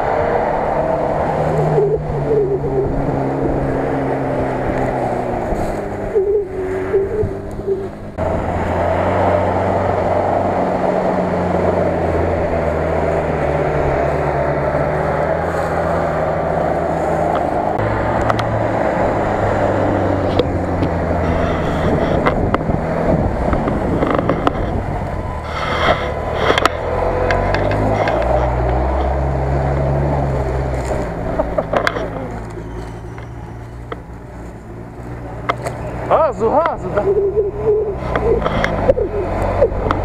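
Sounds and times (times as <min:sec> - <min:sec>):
off-road vehicle engine: 0:00.0 - 0:40.0
clicks and scrapes: 0:20.3 - 0:22.7, 0:23.5 - 0:29.2, 0:38.0 - 0:40.0.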